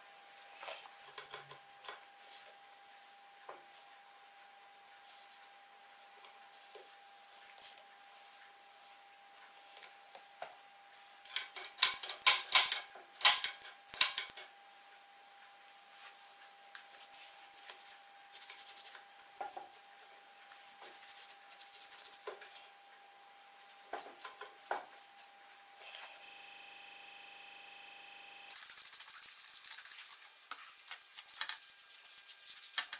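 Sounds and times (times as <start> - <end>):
spray bottle squirting: 28.5 - 30.2.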